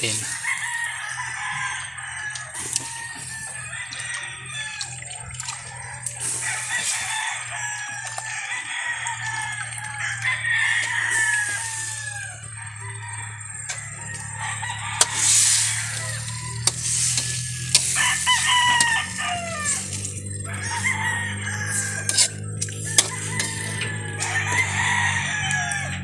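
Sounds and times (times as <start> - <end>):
roosters crowing: 0.0 - 26.0.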